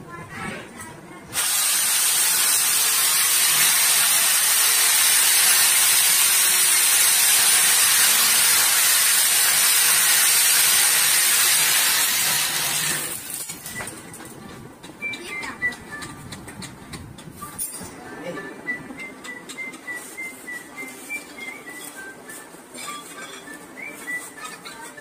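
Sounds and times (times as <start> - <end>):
electric drill boring into wall: 1.4 - 13.7.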